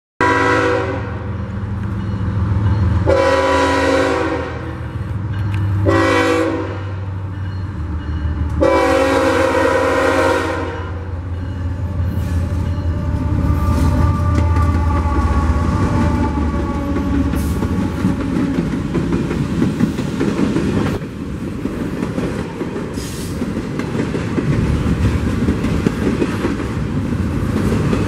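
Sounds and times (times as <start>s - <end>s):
locomotive air horn: 0.2s - 1.4s, 3.0s - 5.0s, 5.8s - 7.1s, 8.5s - 18.7s
diesel locomotive rumble: 0.2s - 28.0s.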